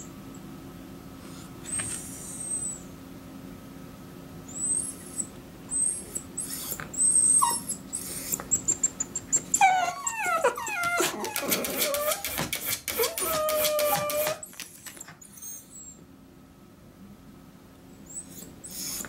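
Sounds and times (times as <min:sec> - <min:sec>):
dogs whining: 0:01.6 - 0:03.0, 0:04.4 - 0:16.0, 0:18.0 - 0:19.0
squeaky whimpers: 0:04.5 - 0:12.3, 0:12.9 - 0:16.0, 0:18.1 - 0:19.0.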